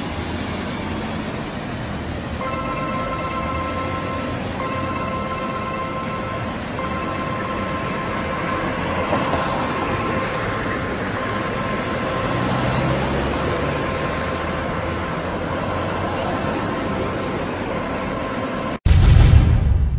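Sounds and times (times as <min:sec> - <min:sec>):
vehicle engines running: 0:00.0 - 0:18.8
faint steady whine: 0:02.2 - 0:12.1
low rumble: 0:18.9 - 0:19.9.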